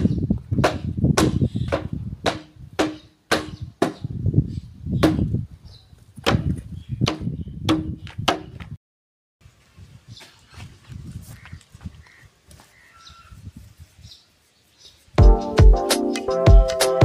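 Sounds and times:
sharp knocks with low ringing: 0.6s - 4.1s, 6.2s - 8.6s.

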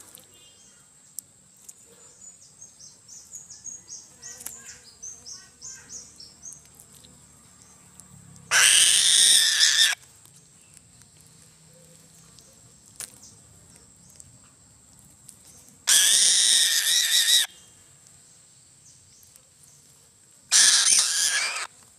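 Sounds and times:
bird of prey screaming calls: 8.5s - 10.0s, 15.9s - 17.5s, 20.5s - 21.7s.

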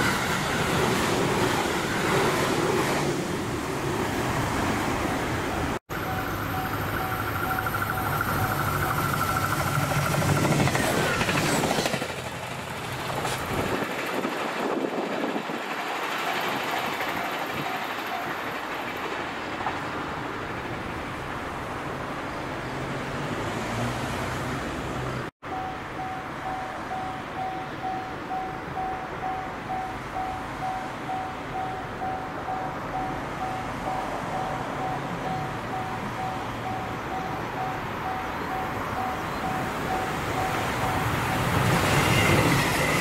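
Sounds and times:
traffic noise: 0.0s - 43.0s
train running past: 0.0s - 43.0s
road vehicle passing: 22.5s - 25.3s.

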